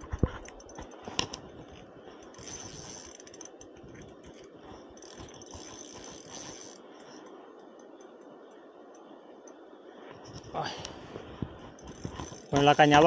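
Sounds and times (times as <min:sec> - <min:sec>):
spinning reel ratcheting: 0:02.2 - 0:08.6, 0:11.7 - 0:13.0.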